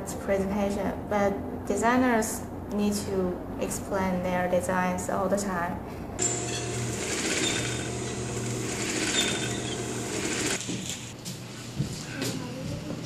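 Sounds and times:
sewing machine running: 6.2 - 11.1.

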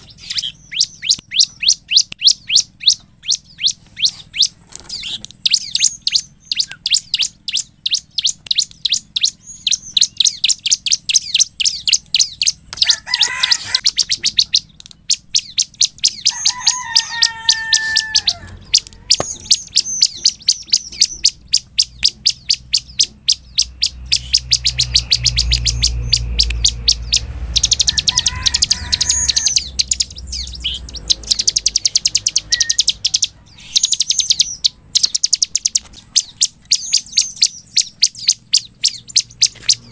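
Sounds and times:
bird singing high repeated notes: 0.0 - 39.9
low rumble: 18.2 - 39.9.

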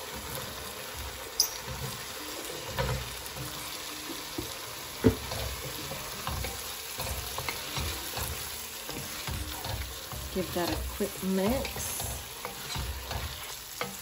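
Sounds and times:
sauce sizzling in a pot: 0.0 - 14.0.

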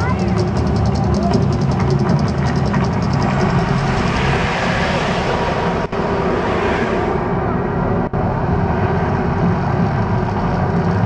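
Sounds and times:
deep steady rumble: 0.0 - 11.0
gas fire jets hissing: 2.3 - 8.4.

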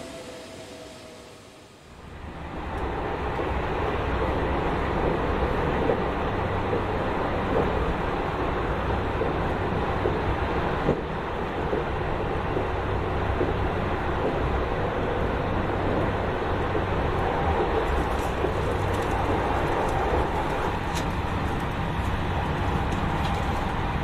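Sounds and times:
low hum: 0.0 - 3.0
train rumbling: 0.0 - 24.0.

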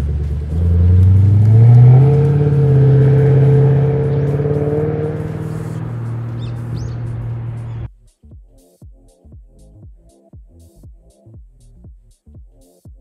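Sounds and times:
car exhaust accelerating: 0.0 - 7.9.

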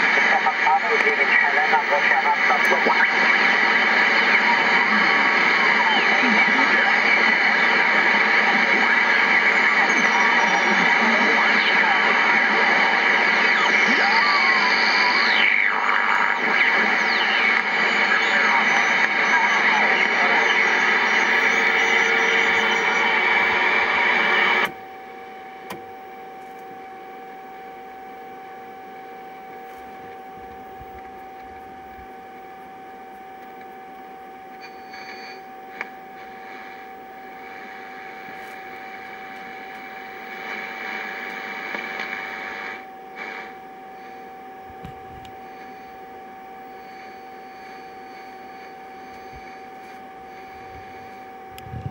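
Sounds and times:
radio static hiss: 0.0 - 51.9
steady whistle: 46.7 - 51.3.

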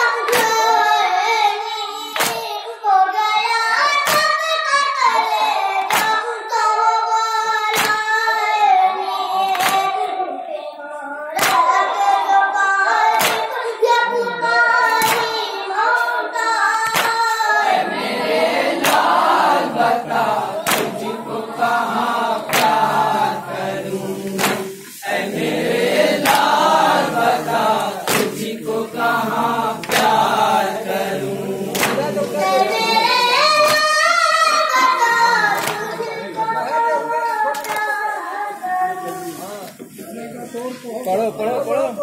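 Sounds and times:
hand strikes on chests: 2.2 - 2.4, 11.4 - 11.7, 13.2 - 13.5, 16.8 - 17.2, 18.8 - 19.3, 20.6 - 21.1, 22.5 - 23.0, 24.3 - 25.0, 26.2 - 26.8, 28.0 - 28.6, 31.7 - 32.2
men chanting in unison: 17.0 - 33.8.

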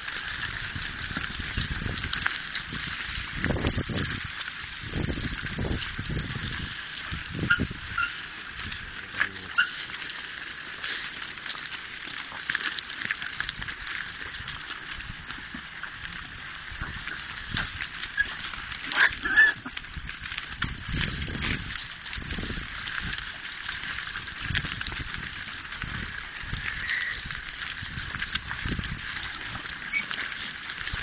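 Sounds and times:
steady rustle: 0.0 - 31.0
boar squealing and grunting: 18.2 - 19.8.

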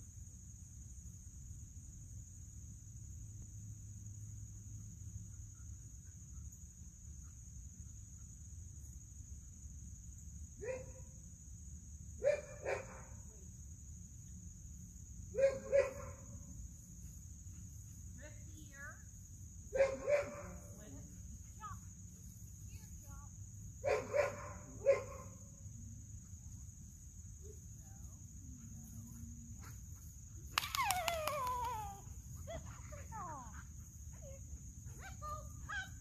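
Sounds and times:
high drone of insects: 0.0 - 36.0
dog barking: 10.6 - 11.0, 12.2 - 13.1, 15.4 - 16.2, 19.8 - 20.7, 23.8 - 25.4.

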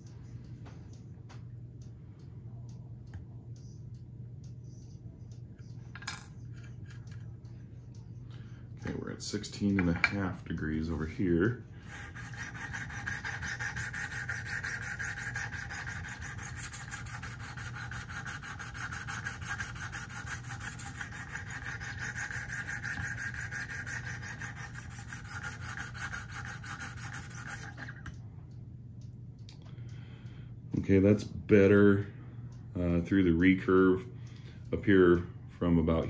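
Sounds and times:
sharpening stone scraping knife: 12.0 - 27.9.

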